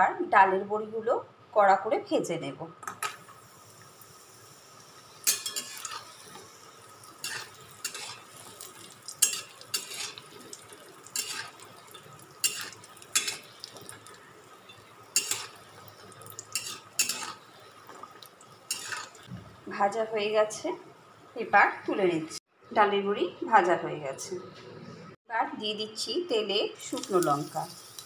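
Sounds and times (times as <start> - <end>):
dumplings sizzling in oil: 3.1 - 20.6, 26.8 - 28.0
metal spatula scraping a pan: 5.2 - 6.6, 7.2 - 10.4, 11.1 - 13.8, 14.7 - 15.7, 16.5 - 17.5, 18.7 - 19.3.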